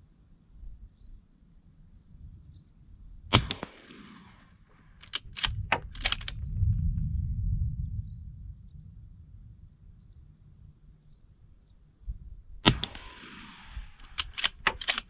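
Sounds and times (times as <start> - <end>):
suppressed gunshot with echo: 3.3 - 6.0, 12.6 - 15.0
sharp clicks: 3.3 - 6.4, 12.7 - 15.0
low rumble: 5.0 - 14.7.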